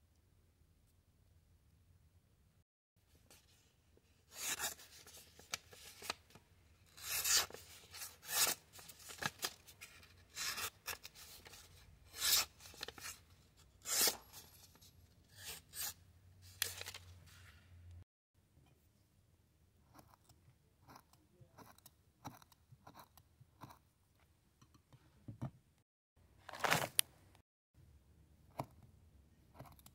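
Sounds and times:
knife slicing paper: 0:13.8 - 0:14.5.

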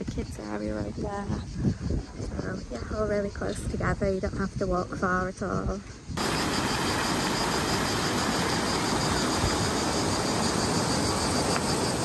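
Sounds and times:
water jets splashing into pool: 0:06.2 - 0:12.0.

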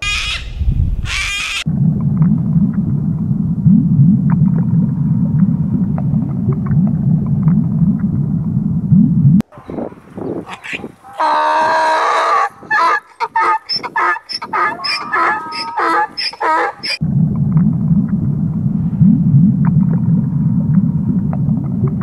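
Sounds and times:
donkey braying: 0:09.5 - 0:17.0.

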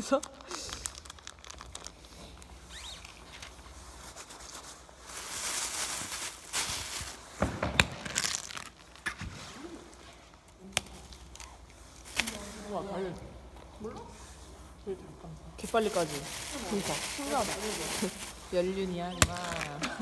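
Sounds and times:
plastic bag crinkling: 0:00.0 - 0:12.9, 0:15.6 - 0:20.0
sharp crackles and knocks: 0:06.0 - 0:09.4.

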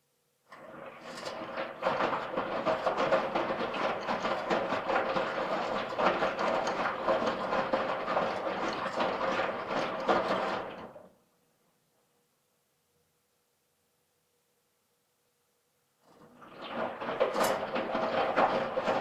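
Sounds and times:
washing machine drum rattling: 0:00.6 - 0:10.8, 0:16.3 - 0:19.0.

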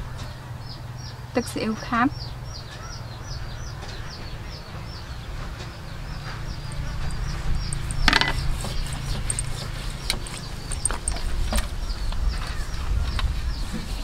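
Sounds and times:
fish tapping metal tray: 0:07.7 - 0:08.6.

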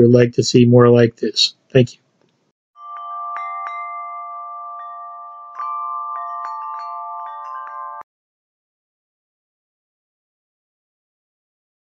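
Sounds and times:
bell-like chime tones: 0:02.8 - 0:08.1.

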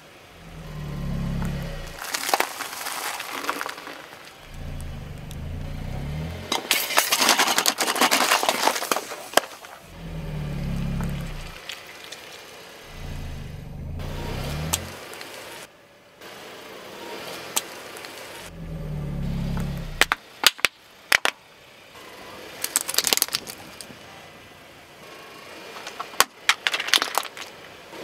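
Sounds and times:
car engine and tyre hum: 0:00.0 - 0:28.0
plastic toys cracking under tyre: 0:02.0 - 0:04.8, 0:06.5 - 0:09.8, 0:20.0 - 0:21.4, 0:22.6 - 0:23.9, 0:25.8 - 0:27.6.

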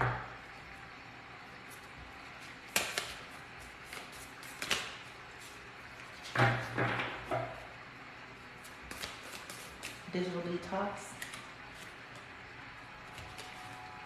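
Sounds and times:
card deck snapping: 0:02.7 - 0:03.2, 0:03.9 - 0:05.0, 0:11.2 - 0:11.4
cards shuffling: 0:02.7 - 0:05.6, 0:08.6 - 0:10.0, 0:11.1 - 0:12.3, 0:13.1 - 0:13.8.

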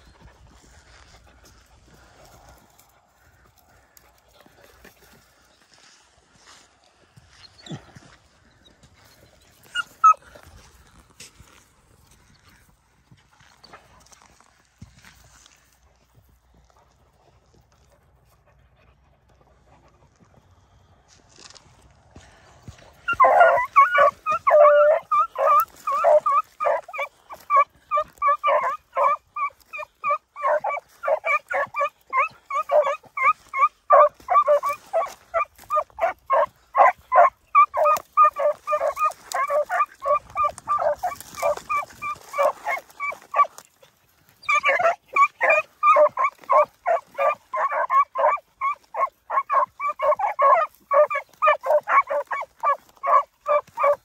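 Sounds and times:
dogs baying: 0:09.0 - 0:10.5, 0:23.0 - 0:54.0.

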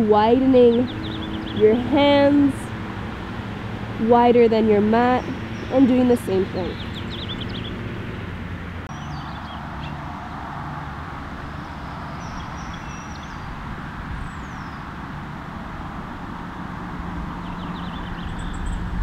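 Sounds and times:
high bird chirps: 0:00.6 - 0:02.4, 0:05.0 - 0:08.3, 0:11.6 - 0:13.6.

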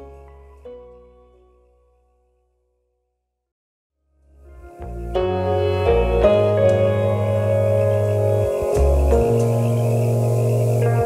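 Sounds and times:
ambient music of long held tones: 0:04.1 - 0:11.0.

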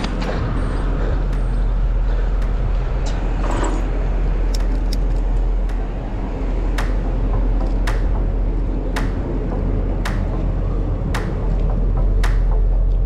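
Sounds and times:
bicycle ride rumble: 0:00.0 - 0:13.0
sharp clicks: 0:04.4 - 0:06.0, 0:06.8 - 0:08.2, 0:09.0 - 0:09.3, 0:10.0 - 0:10.4, 0:12.2 - 0:12.6.

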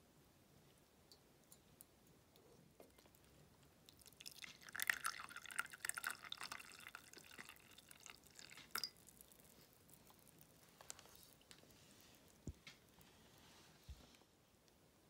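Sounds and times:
tea pouring into a cup: 0:03.9 - 0:13.0.

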